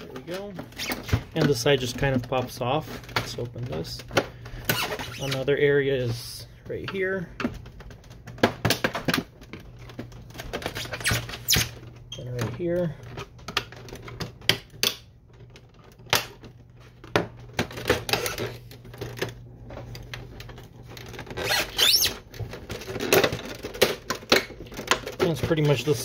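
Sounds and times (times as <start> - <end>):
plastic scraping and rubbing: 0.0 - 14.7, 15.3 - 26.0
plastic clips clicking and snapping: 13.4 - 20.1.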